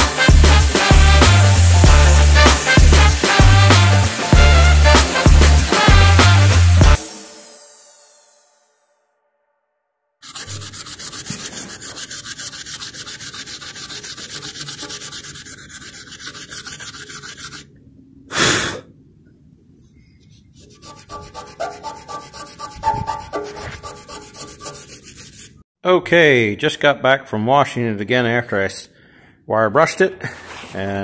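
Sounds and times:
fingers rubbing metal tag: 10.2s - 17.7s, 20.2s - 25.6s
squeaks: 20.7s - 25.4s.

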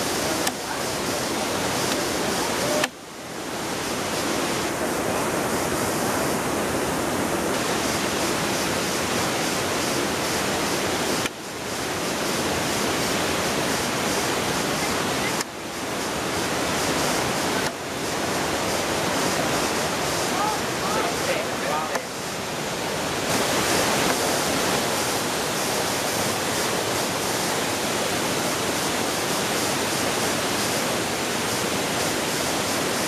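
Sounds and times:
waterfall and stream rushing: 0.0s - 33.0s.

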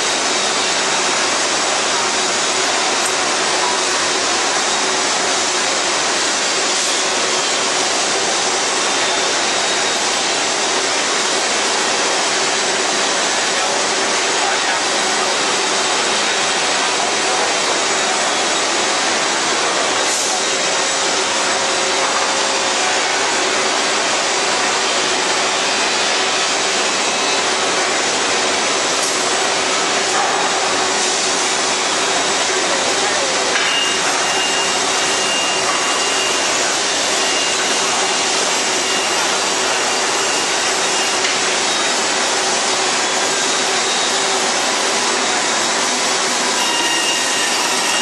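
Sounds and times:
band saw cutting wood: 33.5s - 48.0s.

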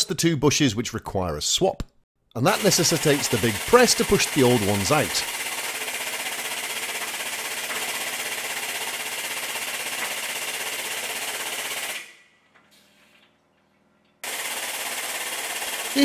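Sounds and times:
hydraulic press pump rattling: 2.5s - 13.3s, 14.1s - 16.0s.

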